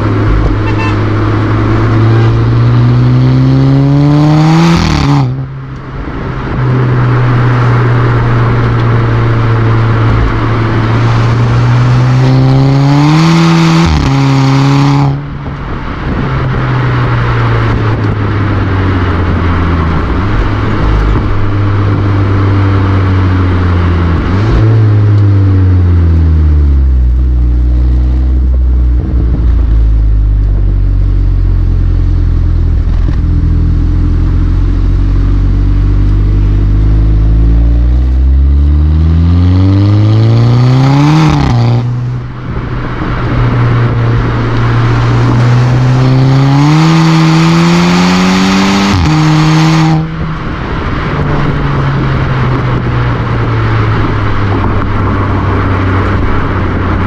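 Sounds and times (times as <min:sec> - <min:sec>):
car exhaust note: 0:00.0 - 0:57.0.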